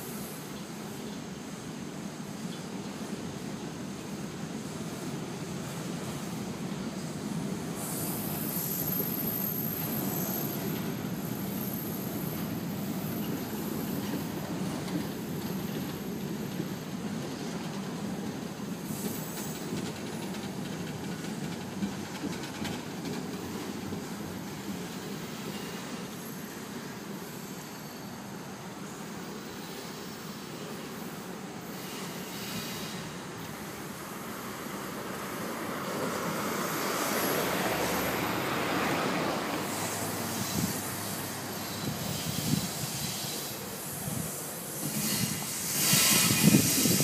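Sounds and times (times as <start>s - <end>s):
train wheels rumbling on bridge: 0.0s - 47.0s
train wheels clicking: 7.0s - 26.4s, 31.0s - 47.0s.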